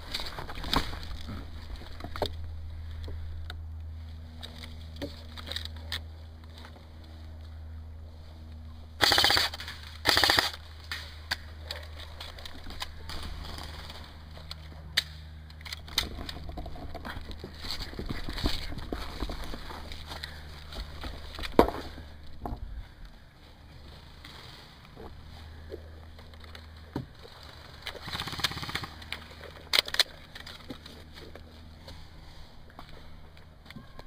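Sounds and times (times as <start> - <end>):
airsoft rifle bursts: 9.0 - 10.6.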